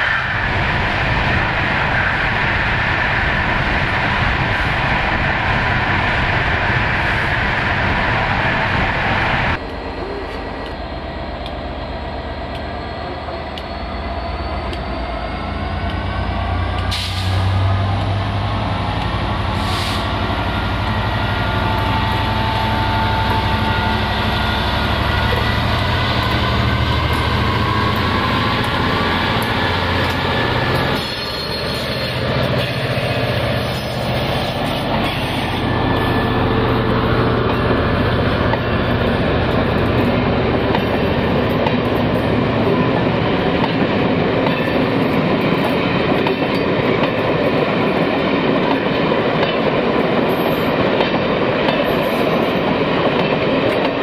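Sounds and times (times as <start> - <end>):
diesel locomotive engine passing: 0.0 - 54.0
train wheels rumbling on rails: 0.0 - 54.0.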